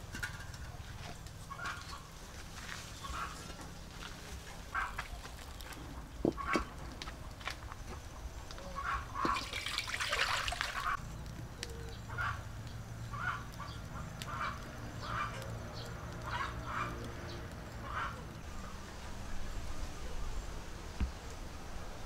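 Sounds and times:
bird calls: 0:00.7 - 0:06.9, 0:07.9 - 0:18.8.

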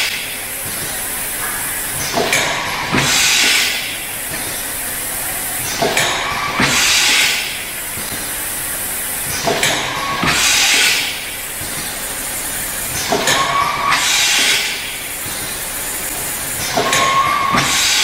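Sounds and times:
sharp mechanical knocks: 0:00.0 - 0:04.6, 0:05.7 - 0:08.2, 0:09.3 - 0:12.0, 0:12.9 - 0:15.6, 0:16.6 - 0:18.0
machine running noise: 0:00.0 - 0:18.0
pneumatic air hissing: 0:00.0 - 0:18.0.

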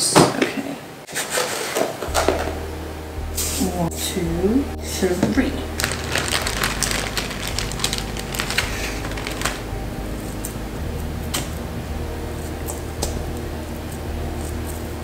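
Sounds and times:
plastic bag crinkling: 0:01.1 - 0:02.5, 0:05.7 - 0:09.7.

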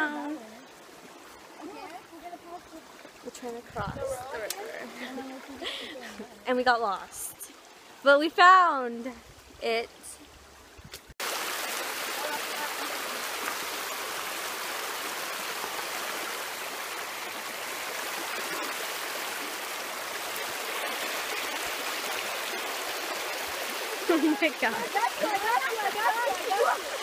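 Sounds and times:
water rushing over stones: 0:11.2 - 0:27.0.

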